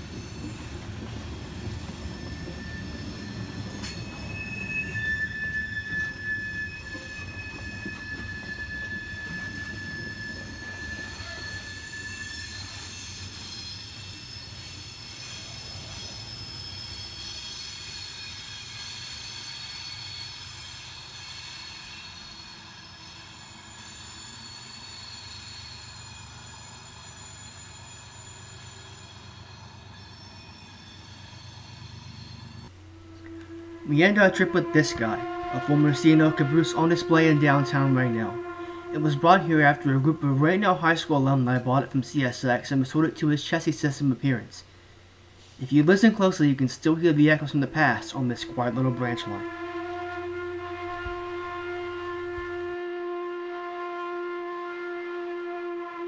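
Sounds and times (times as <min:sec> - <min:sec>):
wheels squealing: 0:00.0 - 0:41.4
train cars rumbling on rails: 0:00.0 - 0:52.9.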